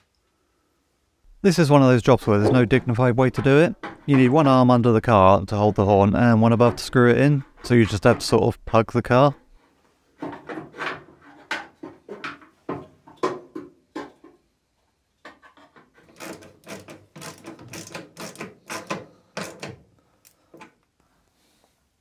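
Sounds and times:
screwdriver clicks and knocks on metal: 16.1 - 19.8.

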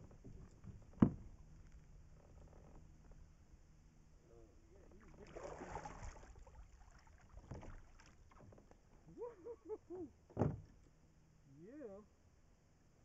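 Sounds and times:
water splashing: 5.0 - 8.6
knocks against kayak hull: 10.3 - 10.7.

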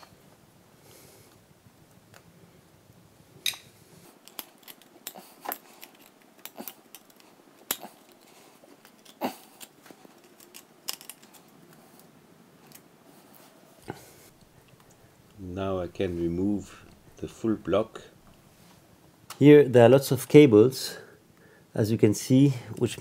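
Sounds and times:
metallic clicks and scrapes: 3.4 - 12.9.

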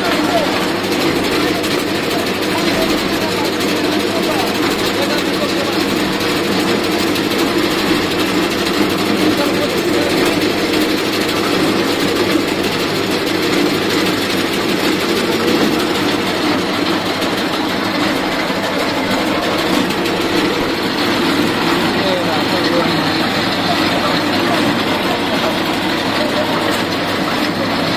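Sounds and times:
machine rattling steadily: 0.0 - 27.9.

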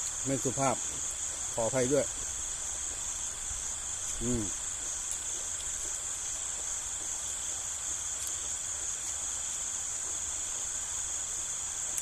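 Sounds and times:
crickets chirping: 0.0 - 12.0
man humming mm while eating: 4.1 - 4.6.

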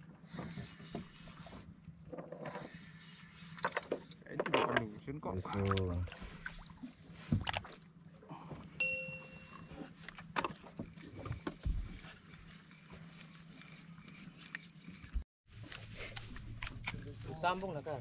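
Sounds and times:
short bell-like chime: 8.8 - 9.9.

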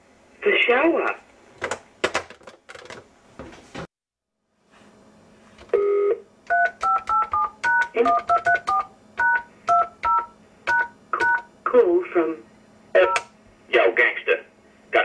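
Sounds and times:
keypad touch tones: 5.8 - 11.5, 13.0 - 13.3.

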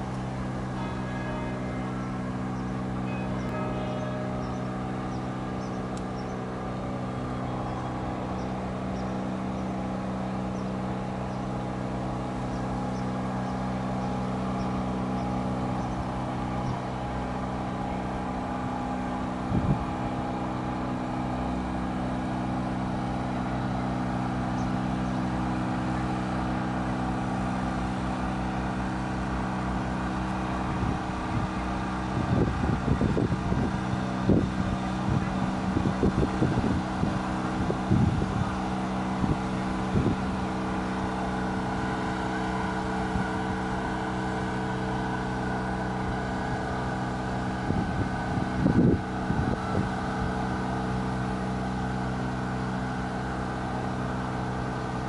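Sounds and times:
steady engine drone: 0.0 - 55.0
wind buffeting microphone: 19.3 - 20.2, 30.6 - 40.6, 47.2 - 50.7.

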